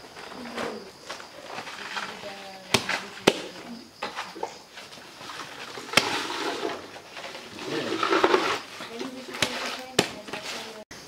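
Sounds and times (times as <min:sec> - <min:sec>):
knife chopping plant stalks: 0:09.3 - 0:10.8.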